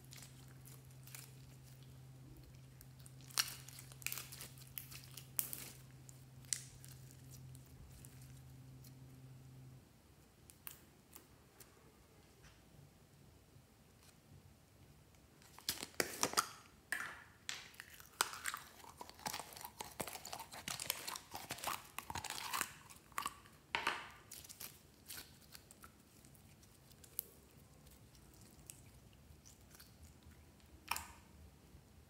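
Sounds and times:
slime squishing by hand: 0:00.0 - 0:09.2, 0:17.6 - 0:31.3.

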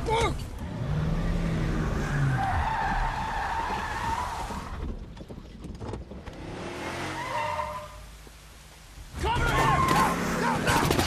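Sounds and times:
car tyres screeching: 0:00.6 - 0:05.0, 0:06.3 - 0:08.1.

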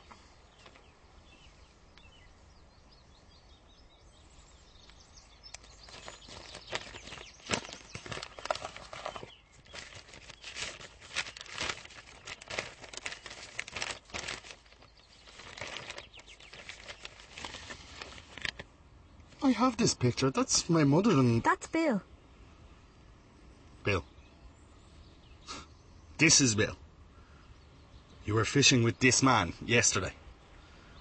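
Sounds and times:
paper rustling: 0:05.6 - 0:18.7.

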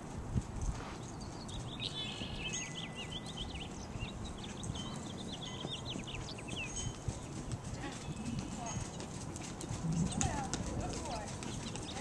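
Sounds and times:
small bird twittering: 0:01.2 - 0:07.4.

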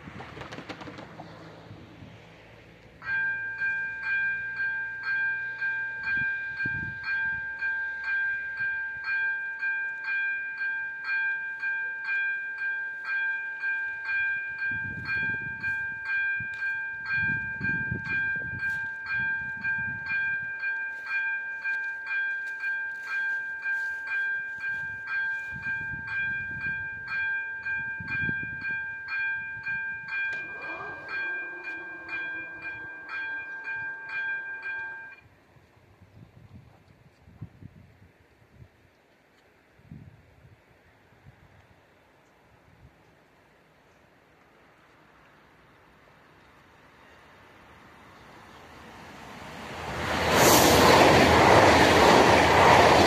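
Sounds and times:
level crossing bell ringing: 0:03.0 - 0:35.2
falling whine: 0:30.3 - 0:34.8.

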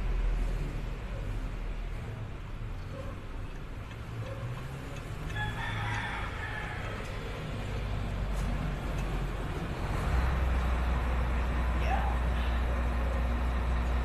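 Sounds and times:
rooster crowing: 0:05.3 - 0:07.4.

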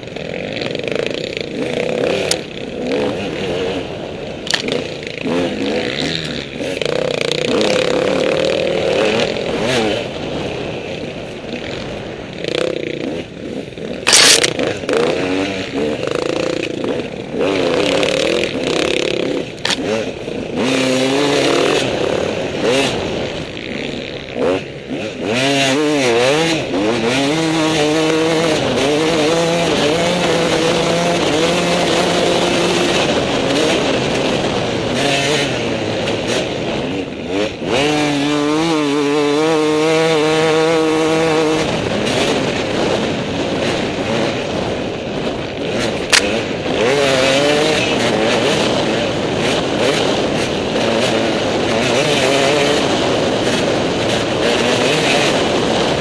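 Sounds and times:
dirt bike engine revving: 0:00.0 - 0:56.0
clatter and scrapes on rocks: 0:14.0 - 0:14.6.

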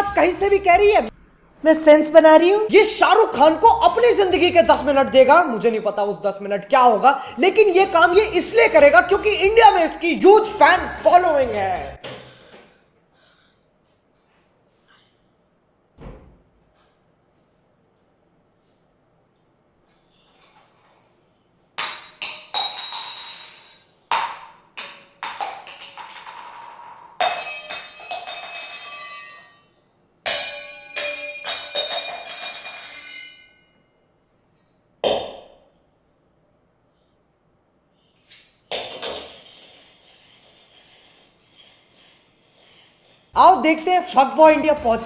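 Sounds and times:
metal pans clanging: 0:30.3 - 0:33.6.

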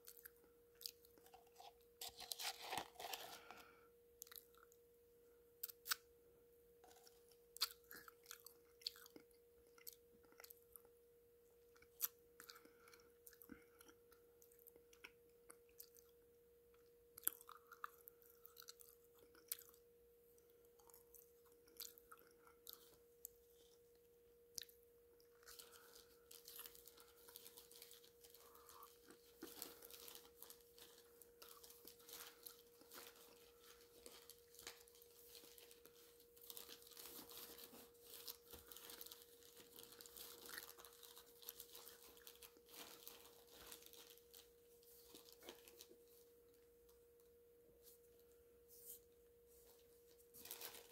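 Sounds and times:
faint steady hum: 0:00.0 - 0:50.9
close-up chewing: 0:06.8 - 0:10.8, 0:17.2 - 0:19.8, 0:20.7 - 0:23.4, 0:24.5 - 0:43.2.

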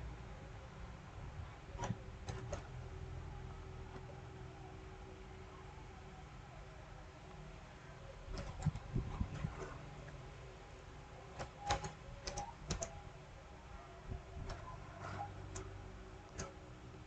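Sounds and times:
computer keyboard clicking: 0:11.4 - 0:12.9.

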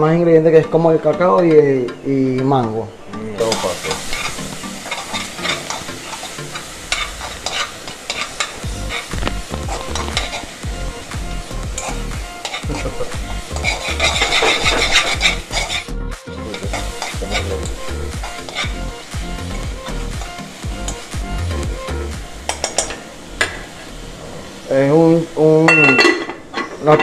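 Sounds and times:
utensil scraping a pan: 0:03.4 - 0:10.6, 0:11.8 - 0:17.6, 0:18.2 - 0:18.8, 0:26.0 - 0:27.0
meat sizzling in a frying pan: 0:03.4 - 0:15.9, 0:16.5 - 0:27.0.

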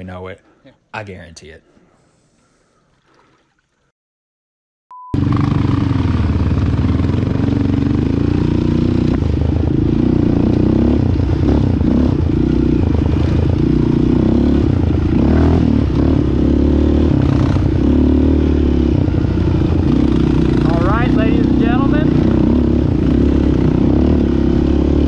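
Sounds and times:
quad engine running: 0:05.2 - 0:25.0.

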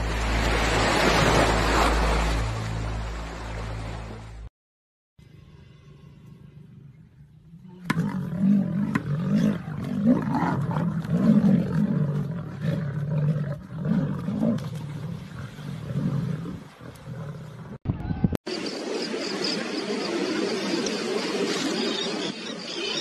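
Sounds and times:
lionesses growling: 0:07.5 - 0:17.8.

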